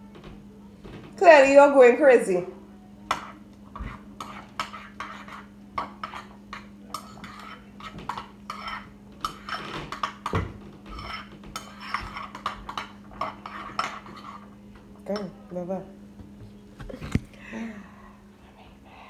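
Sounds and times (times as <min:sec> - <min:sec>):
steady low hum: 0:00.0 - 0:19.0
dishes and cutlery clinking: 0:03.1 - 0:15.4.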